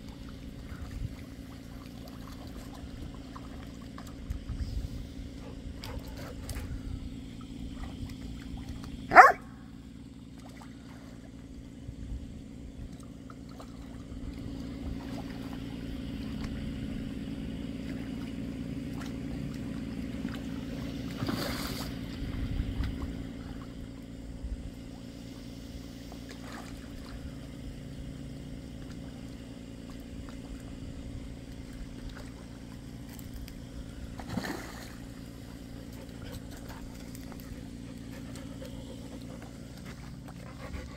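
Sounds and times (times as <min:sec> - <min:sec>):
steady low hum: 0:00.0 - 0:40.9
objects splashing into water: 0:18.8 - 0:22.2, 0:34.0 - 0:35.4.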